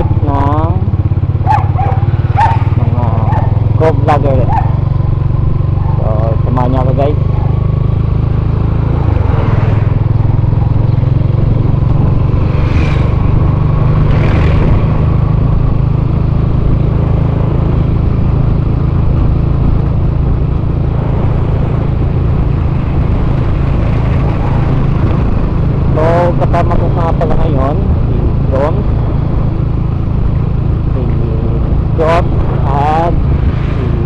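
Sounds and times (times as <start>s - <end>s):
motorcycle engine rumble: 0.0s - 34.0s
short whooshes: 12.5s - 13.3s.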